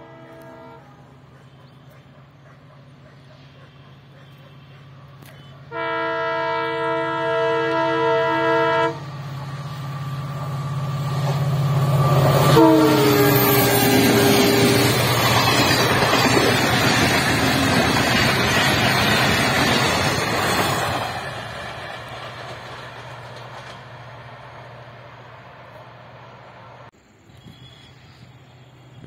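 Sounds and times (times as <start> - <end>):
locomotive horn blast: 0.0 - 1.2, 4.3 - 9.2, 12.4 - 15.0
train wagons rumbling and rattling: 9.0 - 26.8.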